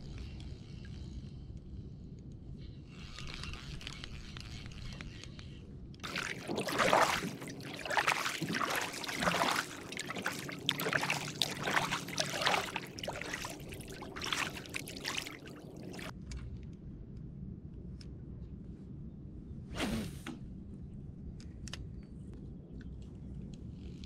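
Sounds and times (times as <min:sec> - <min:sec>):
paddle splashing in water: 0:06.0 - 0:16.1
water trickling off paddle: 0:06.0 - 0:16.1.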